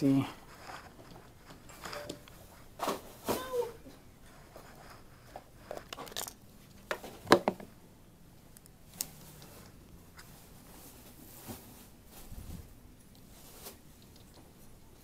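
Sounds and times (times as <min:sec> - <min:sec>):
hands handling small objects: 0:04.6 - 0:07.1.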